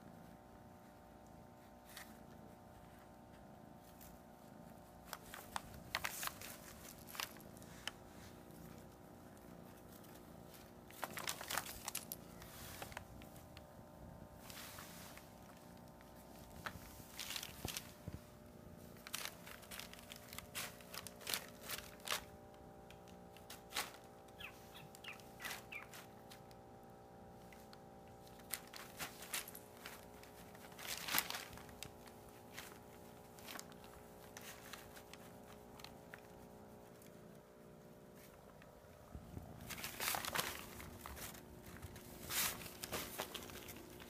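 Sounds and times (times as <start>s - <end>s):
paper crinkling and rustling: 1.6s - 26.7s, 27.3s - 44.0s.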